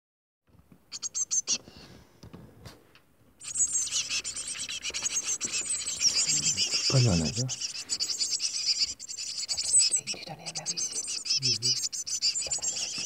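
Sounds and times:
nestlings cheeping: 0:00.9 - 0:01.6, 0:03.4 - 0:13.0.

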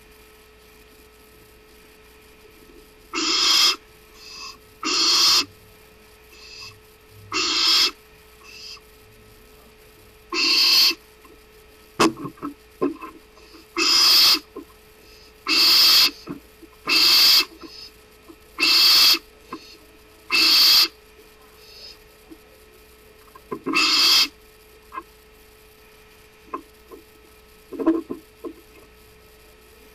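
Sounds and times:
owl hissing screeches: 0:03.1 - 0:05.5, 0:06.4 - 0:08.8, 0:10.3 - 0:11.0, 0:13.4 - 0:14.5, 0:15.1 - 0:18.0, 0:18.6 - 0:21.0, 0:23.7 - 0:24.4
faint short owl calls: 0:03.2 - 0:05.5, 0:06.4 - 0:08.8, 0:10.3 - 0:11.0, 0:13.8 - 0:14.5, 0:15.4 - 0:17.9, 0:18.6 - 0:19.7, 0:20.3 - 0:21.0, 0:23.7 - 0:24.4.

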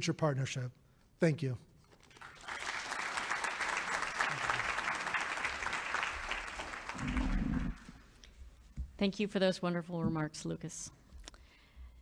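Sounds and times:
audience applauding: 0:02.1 - 0:08.0.

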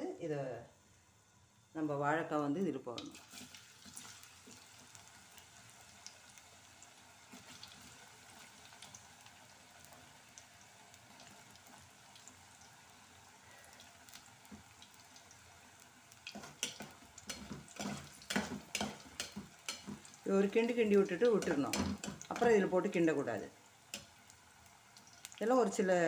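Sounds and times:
slices sizzling in hot oil: 0:02.9 - 0:26.0
spatula scraping a pot: 0:16.3 - 0:20.2, 0:21.2 - 0:22.6.

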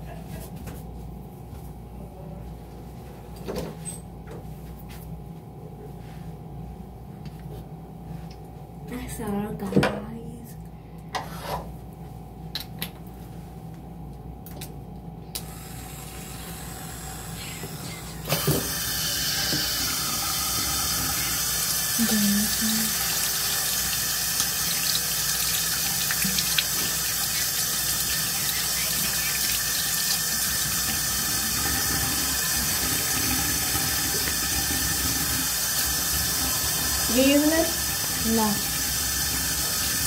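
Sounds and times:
tap water running into sink: 0:18.3 - 0:40.0.

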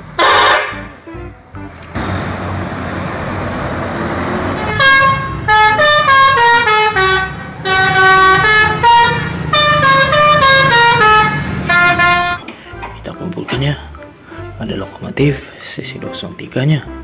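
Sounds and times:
multi-tone bus air horn tune: 0:00.0 - 0:01.5, 0:04.5 - 0:12.9
bus engine and road noise: 0:00.0 - 0:17.0.

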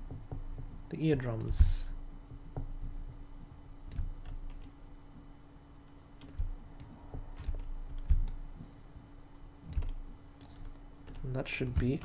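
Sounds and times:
faint steady hum: 0:00.0 - 0:12.0
computer mouse clicks: 0:09.7 - 0:12.0.

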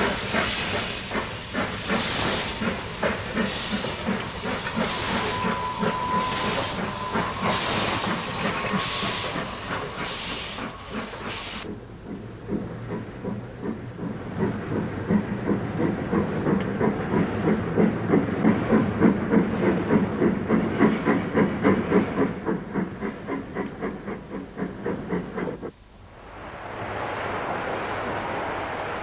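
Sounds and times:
steam locomotive chuffing: 0:00.0 - 0:25.8
steam hiss: 0:00.0 - 0:29.0.

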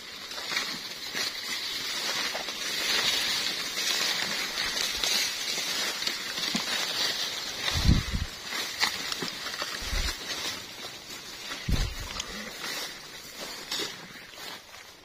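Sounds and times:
dry leaves rustling and crackling: 0:00.0 - 0:15.0
plastic basket brushing plants: 0:00.0 - 0:15.0
small snaps of stalks: 0:08.6 - 0:10.2.

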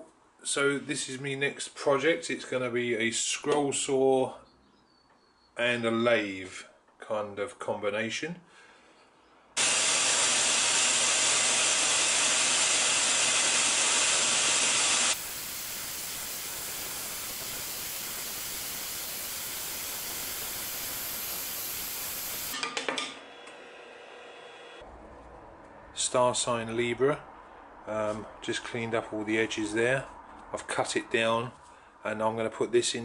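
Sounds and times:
scroll saw cutting plywood: 0:09.6 - 0:22.6
faint motor hum: 0:13.2 - 0:22.6.

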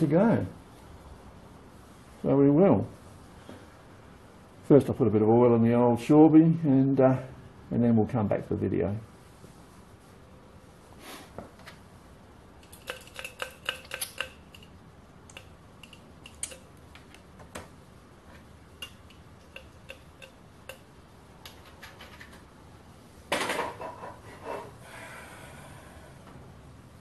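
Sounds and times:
metallic clatter: 0:12.6 - 0:17.2, 0:18.3 - 0:22.4
oil can clicking on metal: 0:12.6 - 0:17.3, 0:18.8 - 0:22.3.

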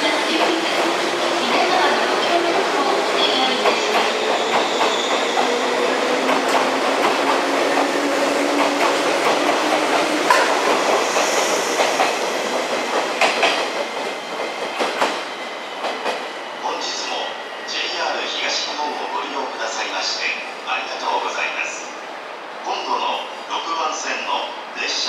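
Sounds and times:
train wheels clattering over rail joints: 0:08.5 - 0:16.3.

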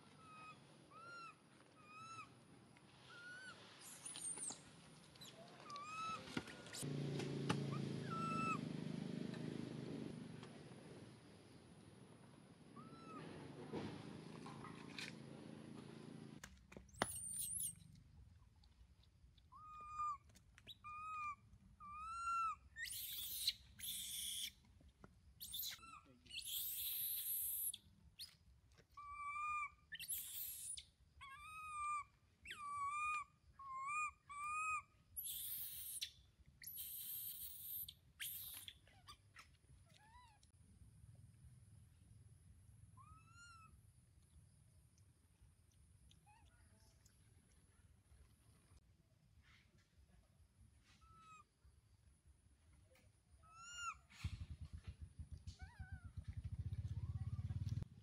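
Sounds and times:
baby monkey coo calls: 0:00.1 - 0:02.3, 0:05.2 - 0:06.8, 0:07.7 - 0:08.6, 0:12.8 - 0:13.2, 0:19.6 - 0:24.6, 0:25.4 - 0:28.4, 0:29.0 - 0:39.2, 0:43.0 - 0:43.8, 0:51.0 - 0:51.5, 0:53.4 - 0:54.1
baby monkey screams: 0:00.2 - 0:02.3, 0:03.1 - 0:04.6, 0:05.2 - 0:06.8, 0:07.7 - 0:08.6, 0:12.8 - 0:13.3, 0:17.1 - 0:17.7, 0:19.5 - 0:24.6, 0:25.4 - 0:28.4, 0:29.0 - 0:40.4, 0:43.0 - 0:43.8, 0:51.0 - 0:51.5, 0:53.4 - 0:54.1, 0:55.5 - 0:56.2.

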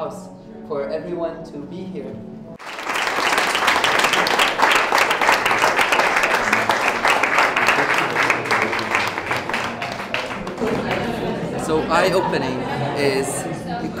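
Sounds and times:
crowd applauding: 0:02.6 - 0:12.2.

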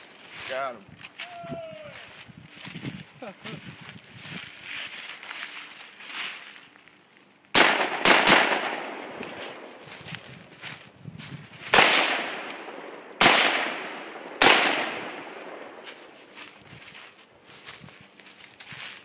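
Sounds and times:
rifle shots with echo: 0:07.6 - 0:09.8, 0:11.7 - 0:16.4.

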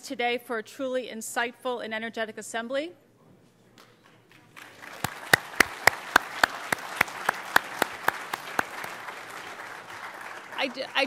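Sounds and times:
loud close hand claps: 0:03.8 - 0:11.0
audience applauding: 0:04.3 - 0:11.0.

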